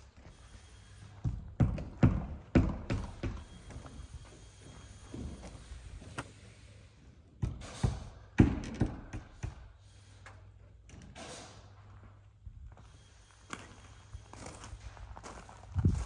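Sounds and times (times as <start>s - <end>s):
footsteps on gravel: 12.6s - 16.0s.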